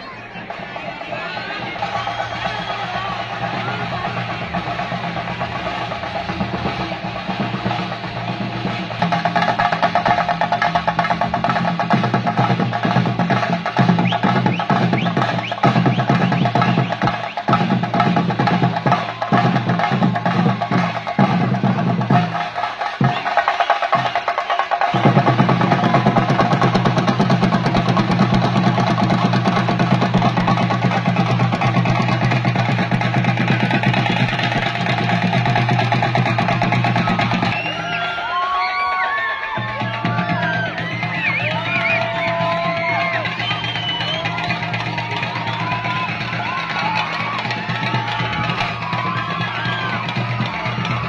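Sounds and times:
drums beaten fast with sticks: 0.0s - 51.0s.

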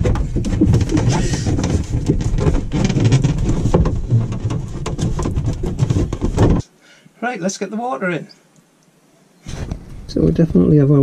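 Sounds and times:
heavy rumble: 0.0s - 6.6s
plastic and rubber creaking: 0.0s - 6.6s
small knocks: 0.0s - 6.7s.

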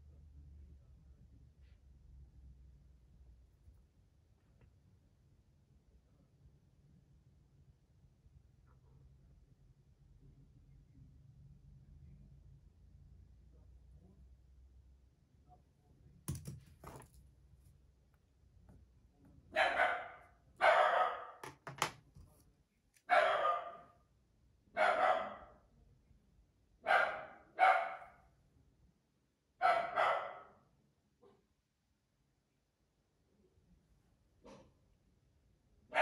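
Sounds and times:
dog barking: 19.5s - 21.4s, 23.1s - 24.0s, 24.7s - 25.6s, 26.8s - 28.3s, 29.6s - 30.6s.

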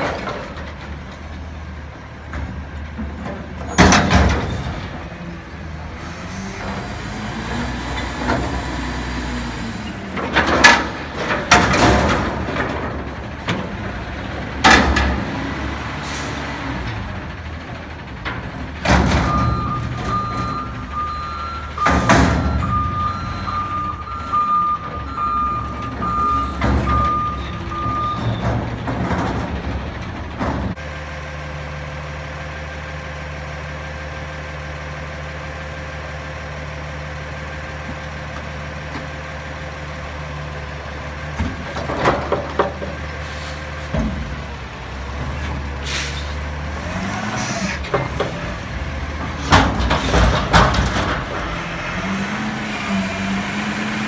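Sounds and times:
metal dumpster banging: 0.0s - 1.5s, 2.2s - 5.4s, 10.1s - 15.7s, 16.8s - 30.8s, 41.3s - 43.1s, 47.8s - 52.2s
diesel engine idling: 10.9s - 54.0s
reversing beeps: 19.3s - 28.4s.

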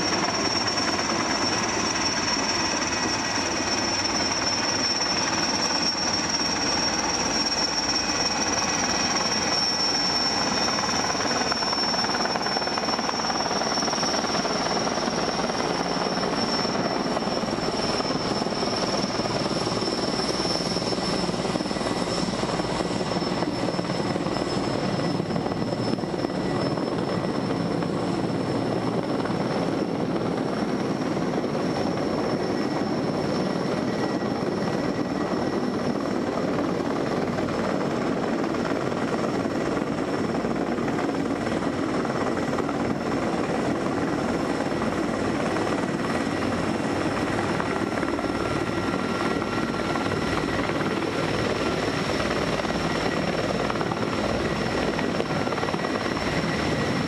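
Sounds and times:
helicopter rotor and turbine: 0.0s - 57.0s.

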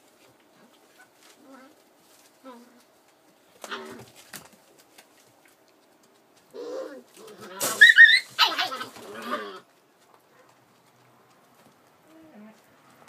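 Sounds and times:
puppies yipping and squealing: 6.6s - 9.7s.

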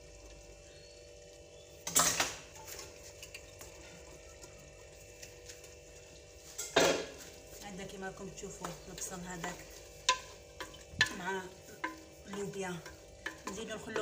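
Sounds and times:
faint steady hum: 0.0s - 14.0s
wooden spoon scraping metal pot: 8.6s - 14.0s.

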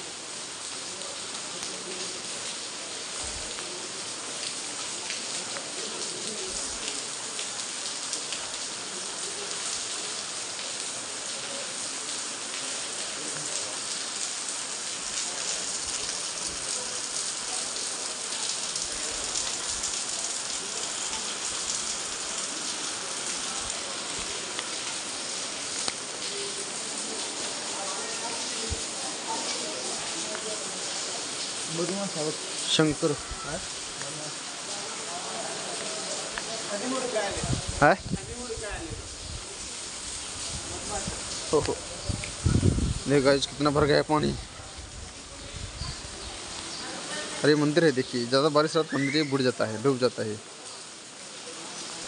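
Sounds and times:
rain pattering on hard surfaces: 0.0s - 52.0s.

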